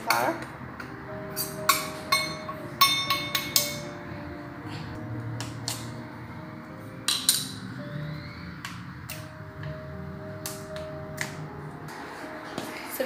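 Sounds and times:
quiet background music: 0.0 - 13.0
steel bowl clinking on pot: 1.4 - 3.9.

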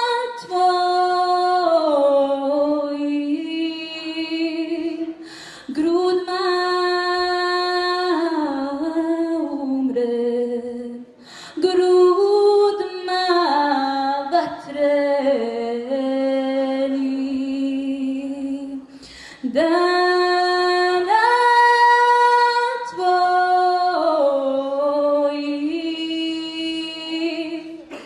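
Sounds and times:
woman singing: 0.0 - 28.0.

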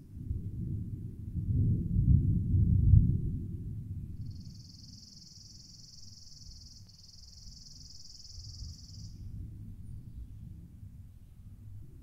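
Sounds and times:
insect buzzing trill: 4.3 - 9.2.

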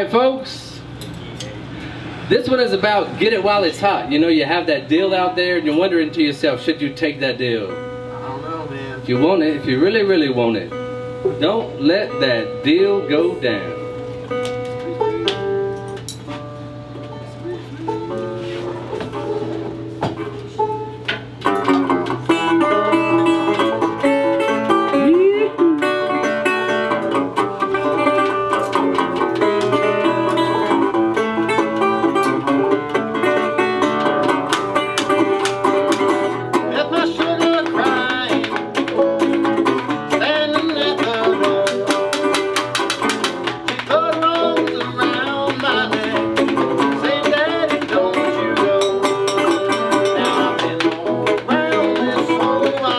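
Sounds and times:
resonator guitar: 0.0 - 52.9
banjo: 17.7 - 52.9.

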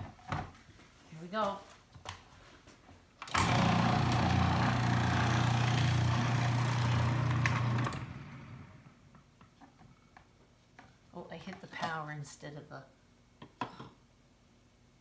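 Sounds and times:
motor winding down: 3.3 - 8.7
food processor motor humming: 3.4 - 8.4.

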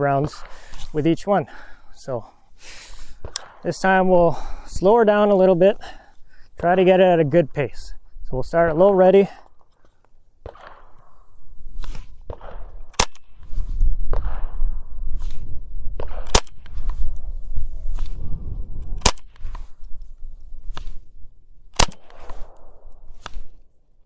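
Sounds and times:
rifle shots: 3.2 - 3.8, 10.4 - 13.5, 14.1 - 14.8, 16.0 - 17.0, 19.0 - 19.6, 21.7 - 23.4
fainter distant gunshot cracks: 10.4 - 11.2, 12.3 - 13.4.

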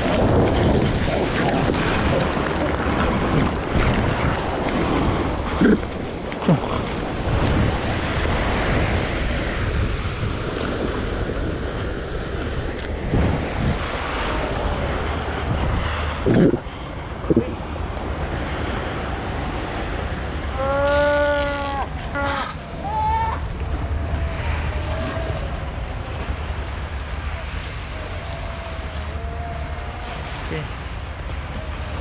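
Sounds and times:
surf breaking: 0.0 - 32.0
wind rumbling on microphone: 0.0 - 32.0
short cries: 20.5 - 23.5.

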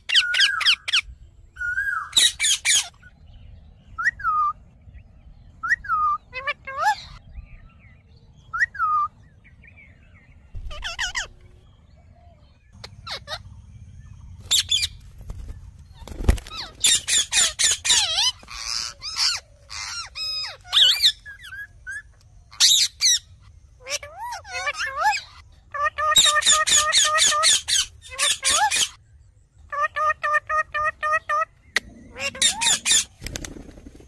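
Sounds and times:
parakeets squawking: 0.0 - 1.1, 1.8 - 3.1, 5.9 - 7.3, 10.6 - 11.6, 12.7 - 15.1, 15.9 - 29.0, 29.7 - 33.2.

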